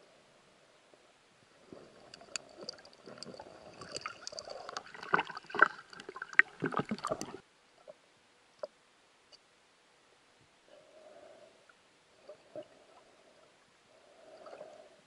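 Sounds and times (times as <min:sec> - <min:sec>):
water gurgling and splashing: 0:01.7 - 0:07.4.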